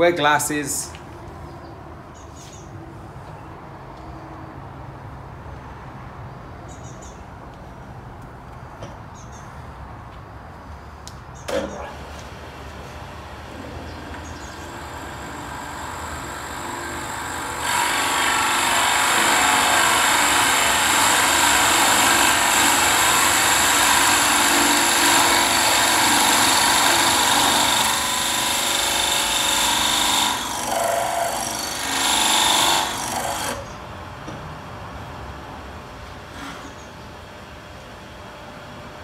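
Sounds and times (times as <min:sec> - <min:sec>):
drill bit cutting wood: 0:14.4 - 0:33.6.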